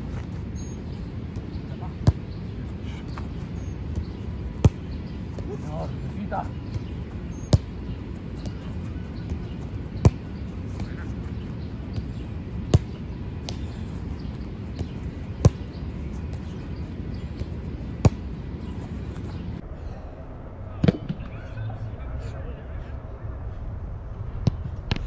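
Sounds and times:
soccer ball kicked hard: 0:01.3 - 0:02.4, 0:03.9 - 0:05.6, 0:06.7 - 0:07.8, 0:08.4 - 0:11.0, 0:11.9 - 0:15.8, 0:17.1 - 0:18.4.

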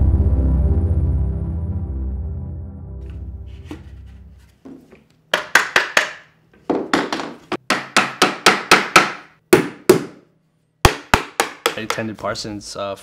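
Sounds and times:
background music: 0:00.0 - 0:04.5
hammer striking wooden frame: 0:05.3 - 0:12.0.

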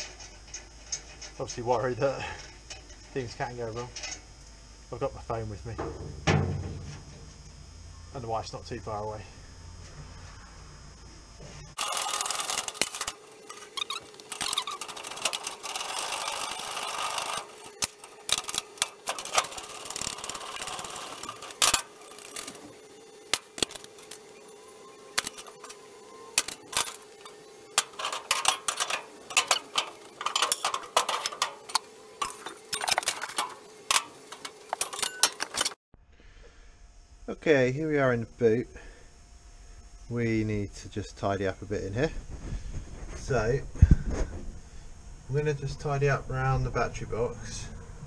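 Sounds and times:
steady hum: 0:00.0 - 0:48.0
knocks and clanks on steel: 0:05.8 - 0:07.3, 0:26.4 - 0:35.8.

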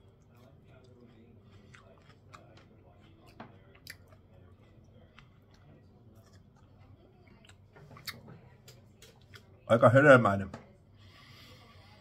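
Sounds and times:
person chewing: 0:00.0 - 0:08.2.

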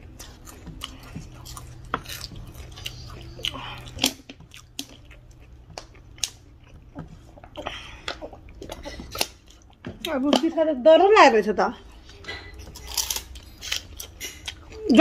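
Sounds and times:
chewing and lip smacks: 0:00.0 - 0:09.9
faint steady hum: 0:00.0 - 0:15.0
hand mixing wet food squelches: 0:00.0 - 0:15.0.

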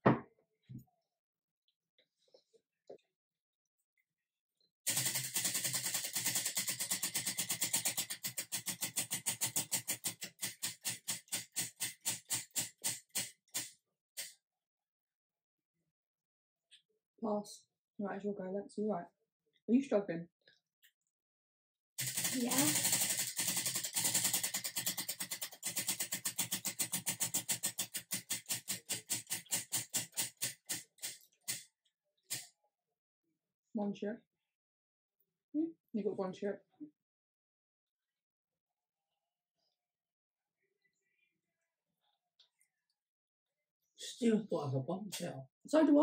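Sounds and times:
prize wheel flapper clicking: 0:04.9 - 0:14.3, 0:22.0 - 0:31.7
prize wheel pointer clicking: 0:22.0 - 0:30.8.

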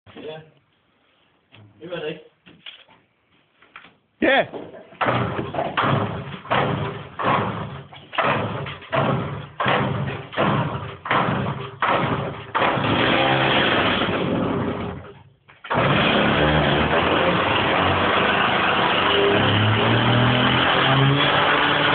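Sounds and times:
chainsaw engine running: 0:11.9 - 0:15.0, 0:15.7 - 0:21.9.

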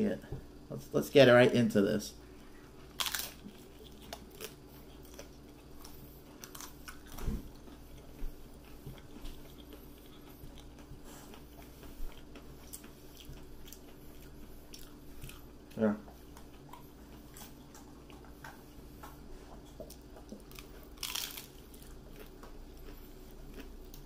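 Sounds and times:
chewing with small crunches: 0:02.2 - 0:24.0
crunching into taco shell: 0:02.8 - 0:07.7, 0:20.3 - 0:24.0.

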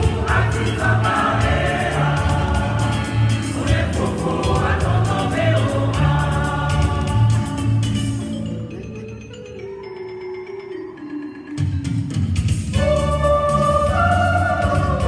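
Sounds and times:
bass line and beat: 0:00.0 - 0:08.0
choir singing gospel song: 0:00.0 - 0:08.1, 0:12.8 - 0:15.0.

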